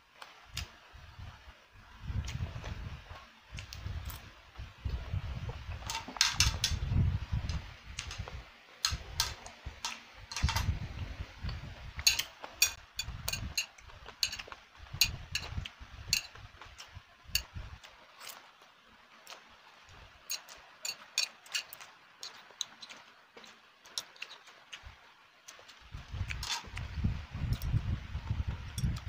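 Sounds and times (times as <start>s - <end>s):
chopsticks and fork clicking on plate: 12.0s - 15.6s, 20.3s - 24.6s
chewing and mouth noises: 20.3s - 27.8s.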